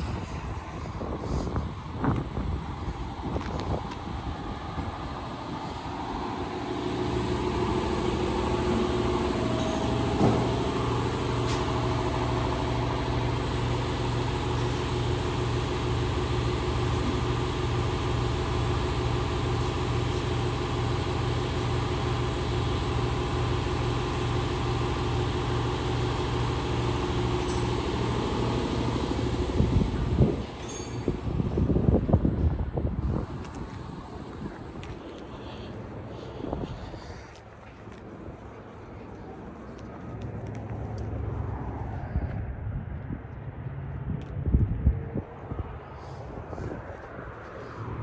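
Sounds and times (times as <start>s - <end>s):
machine humming with even pulse: 2.9s - 32.1s.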